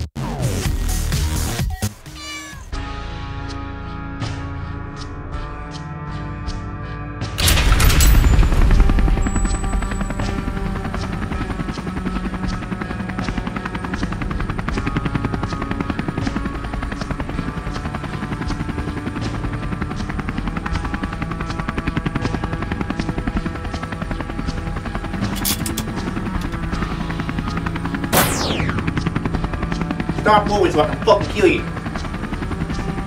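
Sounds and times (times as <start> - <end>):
background music: 0.0 - 33.0
helicopter rotor chopping: 7.4 - 33.0.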